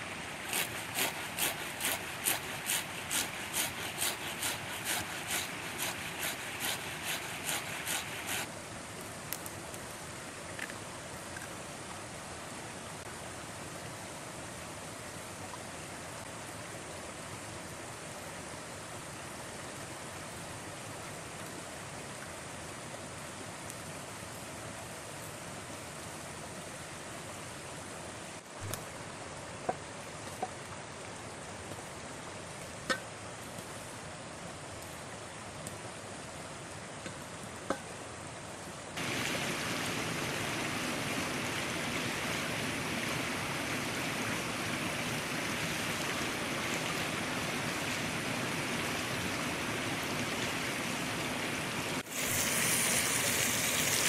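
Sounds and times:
forest stream rushing: 0:00.0 - 0:54.0
potato grated on metal grater: 0:00.5 - 0:08.5.

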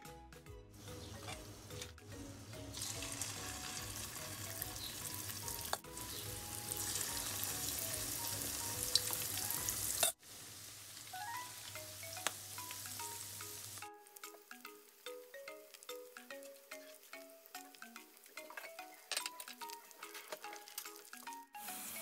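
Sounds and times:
light background music: 0:00.0 - 0:10.2, 0:11.1 - 0:22.0
batter sizzling in hot oil: 0:02.6 - 0:16.0, 0:19.9 - 0:22.0.

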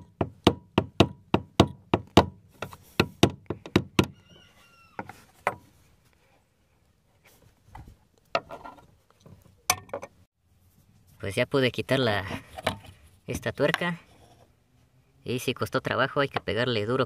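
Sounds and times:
soft handling noises: 0:04.5 - 0:09.7.

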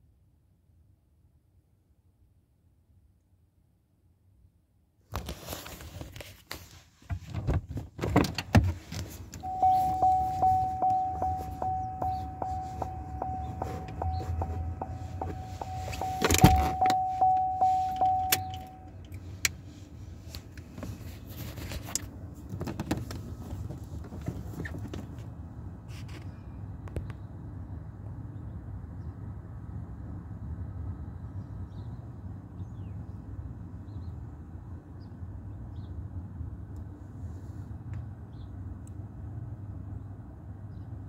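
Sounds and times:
car warning chime: 0:09.4 - 0:19.1
door and phone clicks: 0:15.2 - 0:17.0.

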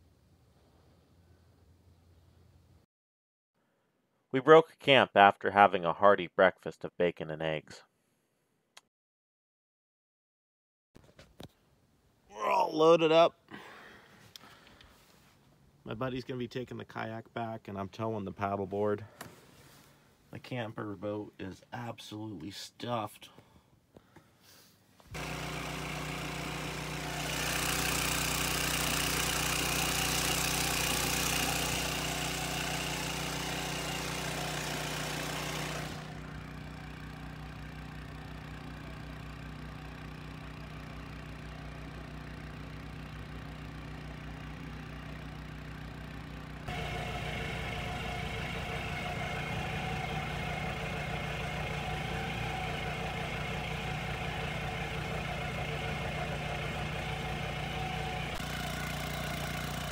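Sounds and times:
small boat motor running: 0:25.2 - 0:59.9.

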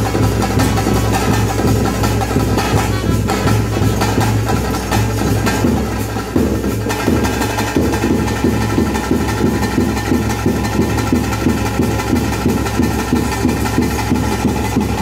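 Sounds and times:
fast ritual drumming: 0:00.0 - 0:15.0.

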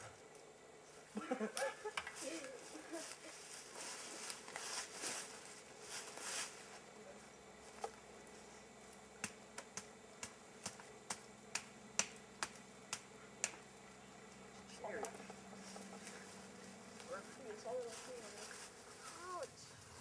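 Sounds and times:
rustling: 0:02.1 - 0:07.0, 0:14.6 - 0:20.0.

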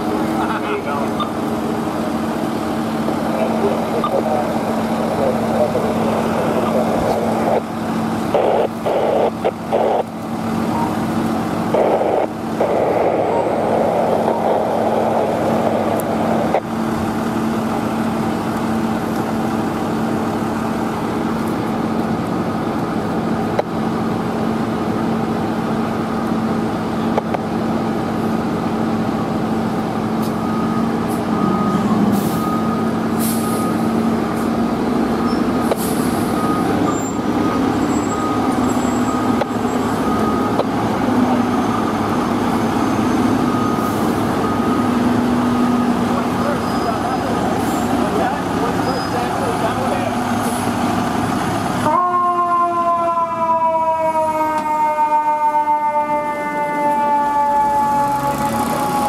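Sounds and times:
fire truck diesel engines: 0:00.0 - 0:59.0
reversing alarm beeping: 0:03.1 - 0:16.6, 0:30.2 - 0:51.2, 0:51.9 - 0:59.0
air brake hisses: 0:32.1 - 0:32.4, 0:33.2 - 0:33.7, 0:35.7 - 0:36.4.

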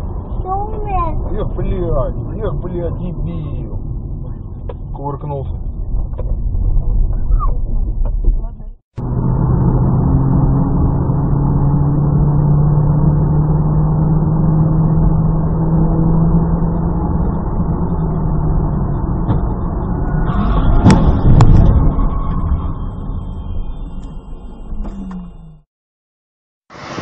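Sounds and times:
car engine and road noise: 0:00.0 - 0:25.7, 0:26.7 - 0:27.0
loud collision bangs: 0:19.2 - 0:23.7.

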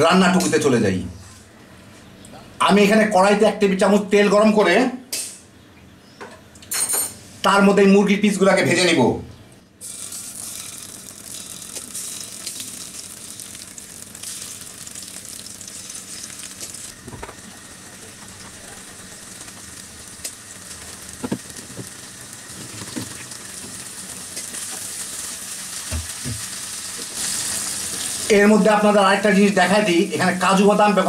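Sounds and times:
chicken sizzling in hot oil: 0:09.8 - 0:31.0.

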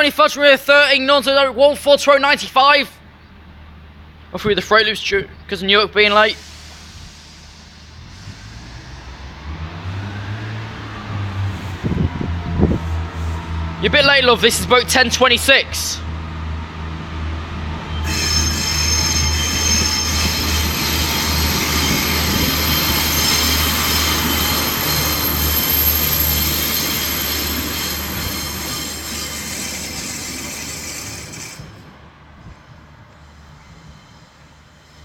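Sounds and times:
train wheels squealing on track: 0:06.1 - 0:09.6, 0:17.8 - 0:35.0
low drone of diesel engine: 0:06.3 - 0:30.4.

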